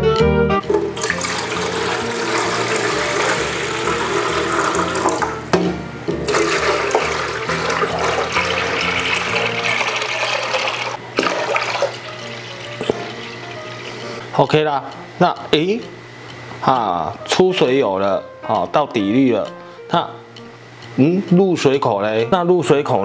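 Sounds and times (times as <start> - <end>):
soft background music: 0.0 - 23.0
water pouring into a plastic tank: 0.6 - 5.3, 6.3 - 13.4.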